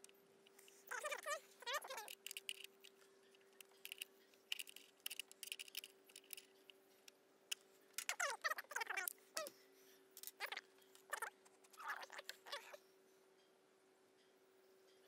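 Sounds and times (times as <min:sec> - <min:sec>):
faint steady hum: 0:00.0 - 0:15.0
spanner clicks and taps: 0:02.0 - 0:08.2.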